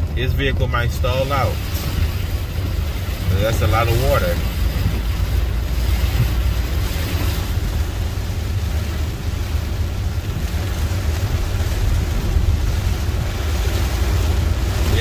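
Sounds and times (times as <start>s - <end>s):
deep rumble: 0.0s - 15.0s
rain on car body: 0.0s - 15.0s
tyres on wet road: 0.0s - 15.0s.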